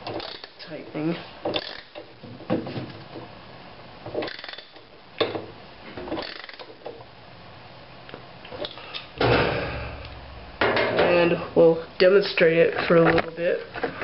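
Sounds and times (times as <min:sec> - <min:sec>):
ratchet wrench clicking: 0:01.5 - 0:02.0, 0:04.2 - 0:04.7, 0:06.2 - 0:06.7.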